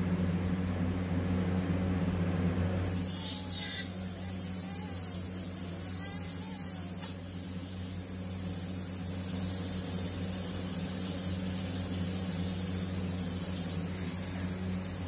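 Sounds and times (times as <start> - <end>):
airbrush air hiss: 2.8 - 15.0.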